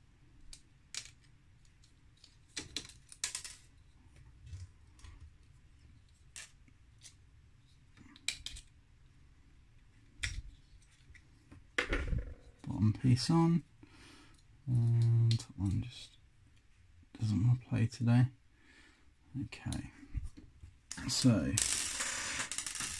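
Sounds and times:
small plastic parts clicking: 0:00.4 - 0:03.7, 0:07.8 - 0:08.8.

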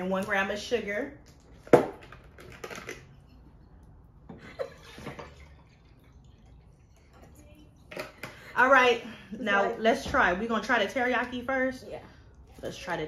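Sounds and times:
juice pouring into glass jar: 0:05.1 - 0:07.9.

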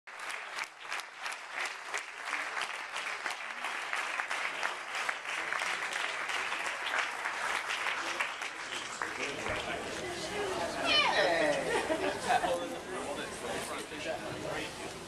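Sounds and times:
crowd clapping: 0:00.1 - 0:10.7.

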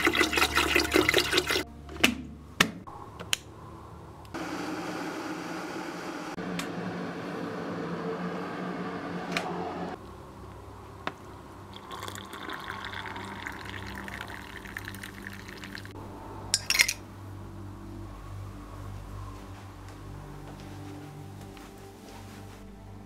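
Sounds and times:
hot water pouring into mug: 0:00.0 - 0:01.6, 0:11.7 - 0:16.0
electric kettle heating rumble: 0:04.4 - 0:10.3, 0:11.4 - 0:15.9
metal spoon clinking mug: 0:16.6 - 0:17.0.

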